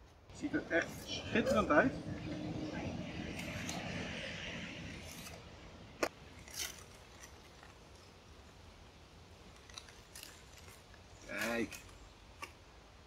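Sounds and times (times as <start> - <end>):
aluminium foil crinkling: 6.2 - 8.5, 9.4 - 12.6.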